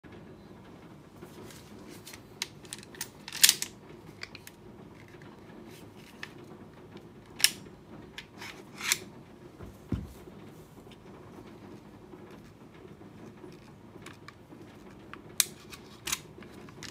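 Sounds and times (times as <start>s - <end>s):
metallic pistol clicks and scrapes: 8.3s - 9.0s
soft thump on a mat: 9.6s - 10.2s.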